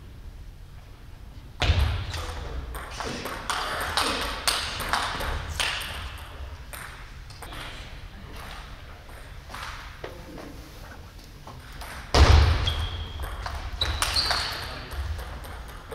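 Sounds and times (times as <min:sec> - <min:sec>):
ping pong ball bouncing on table: 0:13.1 - 0:15.9
ping pong ball clicking off bats: 0:13.2 - 0:15.9.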